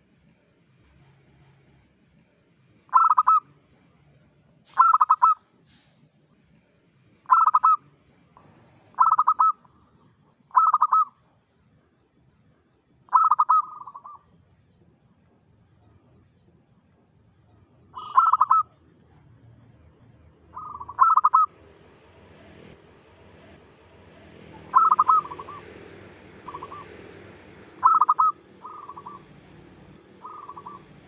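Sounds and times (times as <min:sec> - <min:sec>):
dove cooing: 0:02.9 - 0:03.4, 0:04.8 - 0:05.4, 0:07.3 - 0:07.8, 0:08.8 - 0:09.7, 0:10.5 - 0:11.2, 0:13.1 - 0:14.2, 0:18.0 - 0:18.8, 0:20.5 - 0:21.6, 0:24.1 - 0:31.0.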